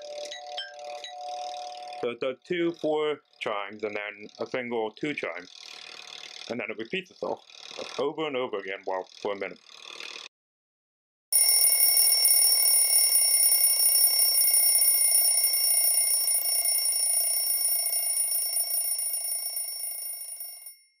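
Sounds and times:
electric doorbell ringing: 11.4s - 21.0s.

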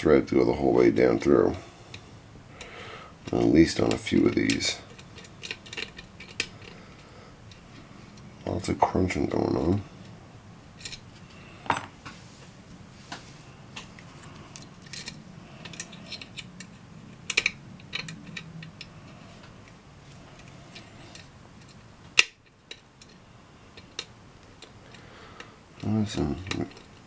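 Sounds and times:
lock pick clicking and scraping: 2.6s - 8.4s, 10.8s - 11.3s, 13.8s - 25.0s, 25.8s - 27.0s.

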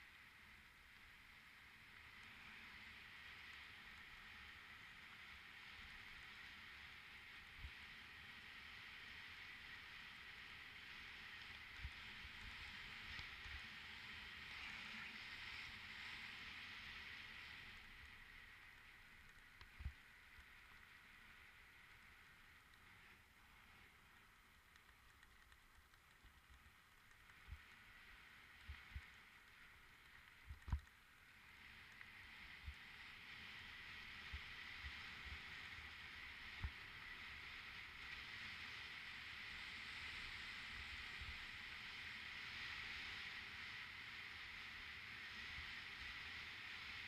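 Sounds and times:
bike tyres rolling hiss: 0.0s - 47.0s.

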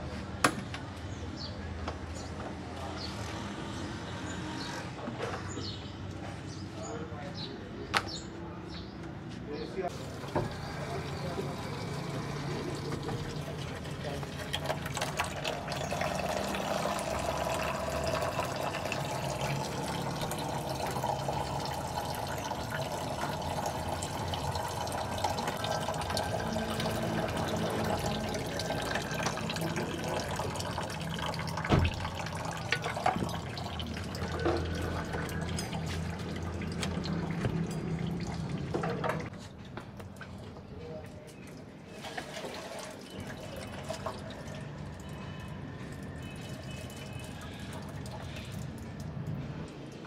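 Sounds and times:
oil splashing into metal tray: 9.9s - 39.3s.

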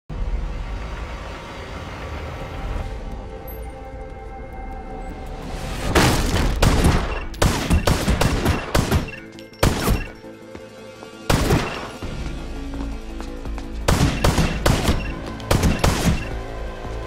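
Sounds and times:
pistol shots echoing: 6.6s - 10.2s, 13.9s - 16.3s.

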